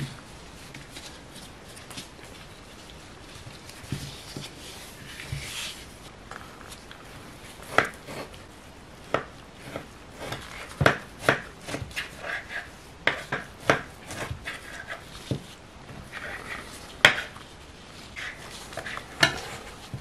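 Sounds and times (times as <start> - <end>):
soft rustling of hands: 0.0 - 7.5
knife cutting dough: 7.6 - 8.4, 9.1 - 17.4, 18.1 - 20.0.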